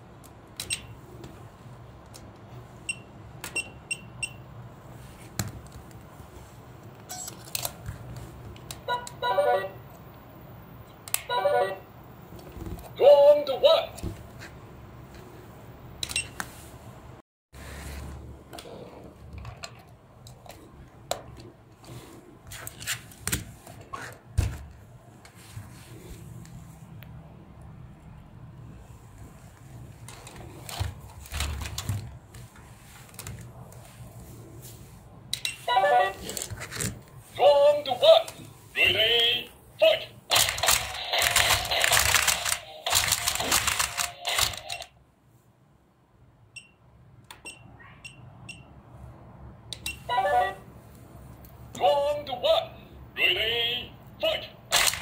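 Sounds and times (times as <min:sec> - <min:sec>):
toy robots rattling with whine: 0:40.3 - 0:44.9.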